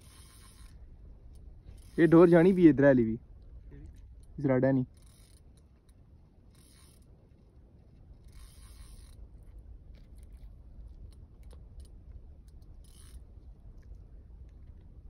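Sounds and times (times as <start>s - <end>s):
fishing reel clicking: 0.0s - 2.8s, 3.8s - 7.1s, 8.2s - 9.2s, 11.1s - 13.3s.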